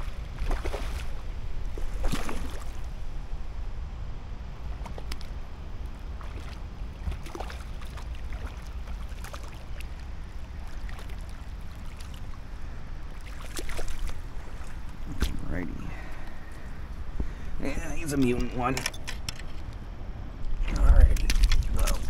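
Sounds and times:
wind rumble on microphone: 0:00.0 - 0:22.0
creek water flowing: 0:04.5 - 0:18.7.

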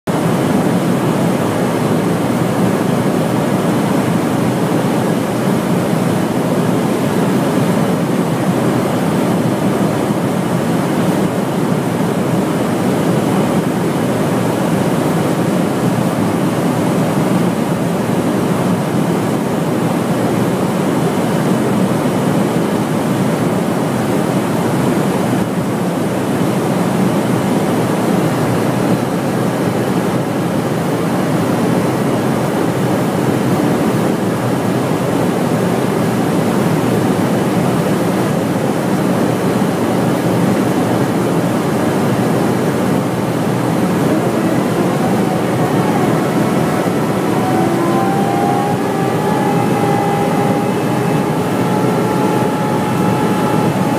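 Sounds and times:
aircraft engine noise: 0:00.1 - 0:53.9
rushing airflow: 0:39.5 - 0:53.9.

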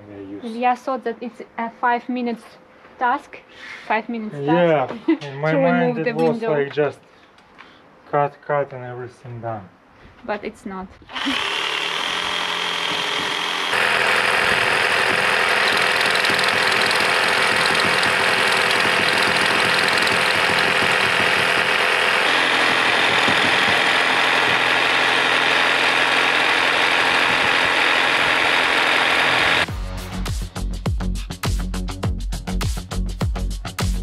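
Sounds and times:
reciprocating saw cutting metal: 0:11.1 - 0:29.7.

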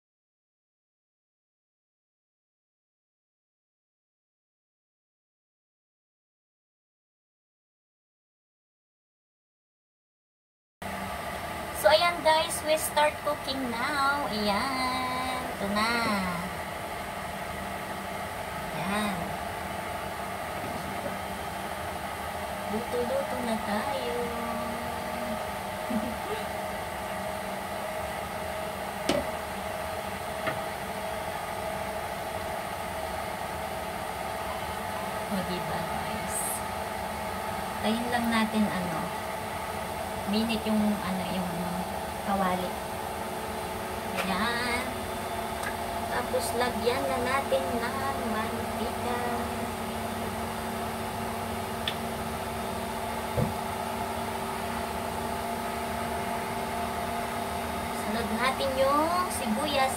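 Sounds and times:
cooling fan whir: 0:10.8 - 0:59.9
electric appliance hum: 0:10.8 - 0:59.9
short thump: 0:53.3 - 0:53.6.

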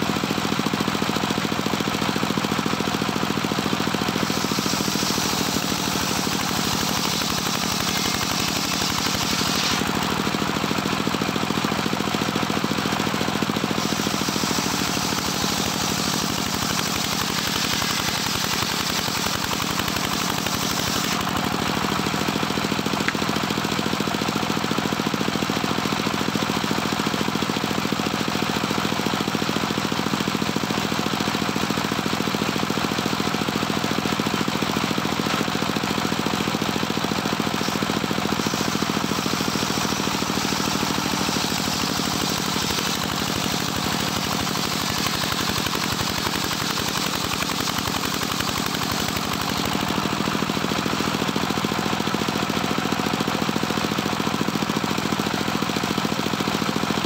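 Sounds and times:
saw blade cutting log: 0:00.0 - 0:57.0
sawmill engine running: 0:00.0 - 0:57.0.

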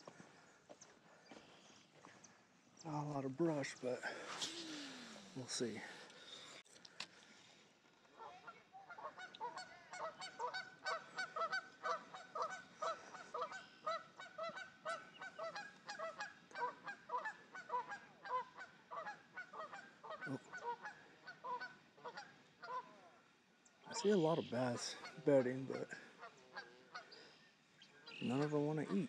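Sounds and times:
geese honking: 0:08.2 - 0:29.0.

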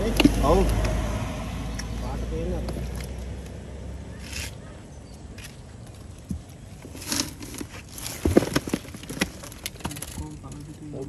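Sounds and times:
knocks of box being handled: 0:07.6 - 0:10.0.

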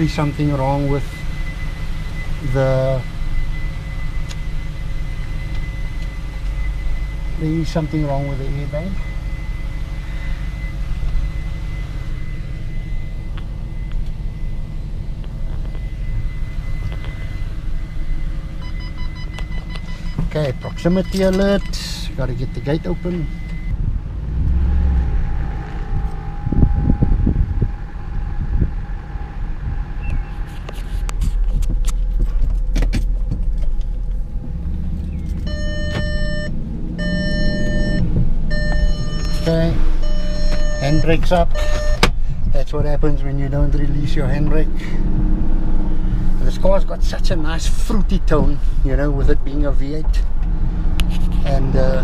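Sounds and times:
thin high tone: 0:00.0 - 0:23.7, 0:35.2 - 0:42.0
warning chime beeping: 0:00.0 - 0:23.7, 0:35.2 - 0:42.1
car engine low rumble: 0:00.0 - 0:52.0.

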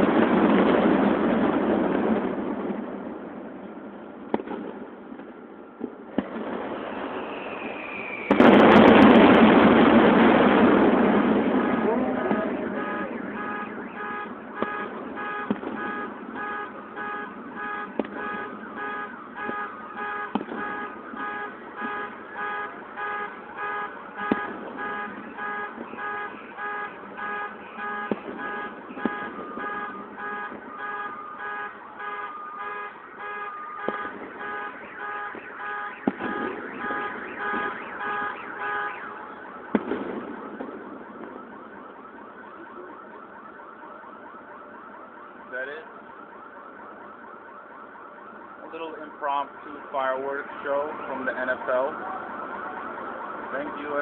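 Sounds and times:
distant firework bangs: 0:00.0 - 0:43.6
car alarm beeping: 0:11.3 - 0:53.4.

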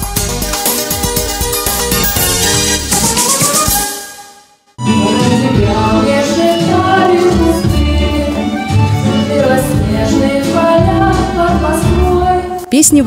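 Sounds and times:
steady bass line: 0:00.0 - 0:03.8
instrumental accompaniment: 0:00.0 - 0:13.0
woman singing into a microphone: 0:05.0 - 0:13.0.

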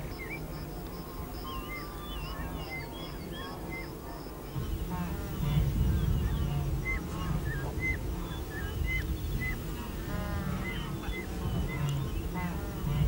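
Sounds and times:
wildebeest grunting and calling: 0:00.0 - 0:13.0
steady low rumble: 0:04.2 - 0:13.0.

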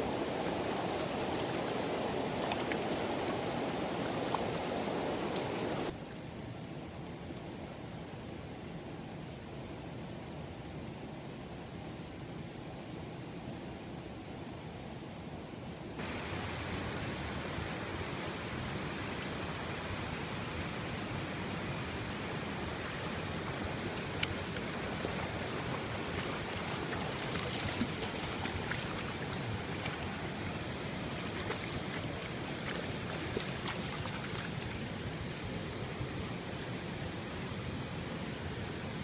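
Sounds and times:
creek water rushing: 0:00.0 - 0:06.0, 0:16.0 - 0:39.0
dog splashing through water: 0:24.0 - 0:35.0.

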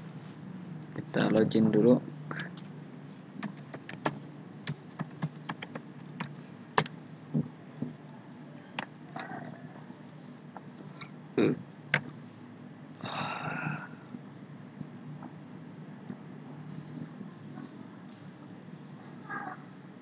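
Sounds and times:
low steady hum: 0:00.0 - 0:20.0
keyboard key clicks: 0:03.4 - 0:07.0.

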